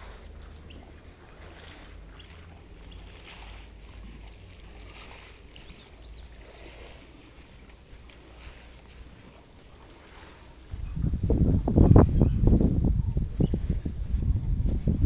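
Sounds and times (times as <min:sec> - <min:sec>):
wind buffeting microphone: 0:09.8 - 0:15.0.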